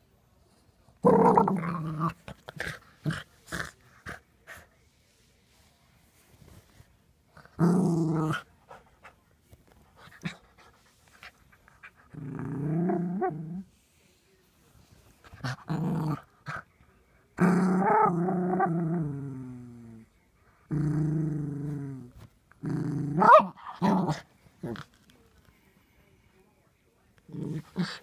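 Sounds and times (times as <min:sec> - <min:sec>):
puppy play-growling: 0:01.0 - 0:04.6, 0:07.3 - 0:13.7, 0:15.2 - 0:16.7, 0:17.4 - 0:25.1, 0:27.2 - 0:28.0.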